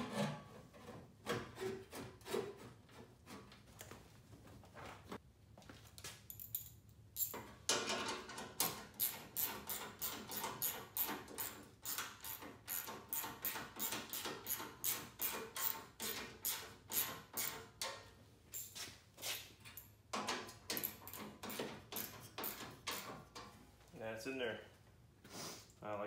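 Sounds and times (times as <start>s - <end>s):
ratchet wrench clicking: 8.6s - 17.5s.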